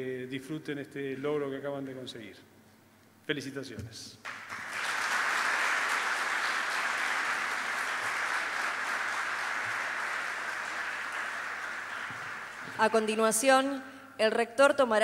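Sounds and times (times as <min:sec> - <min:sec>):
audience applauding: 0:04.3 - 0:13.2.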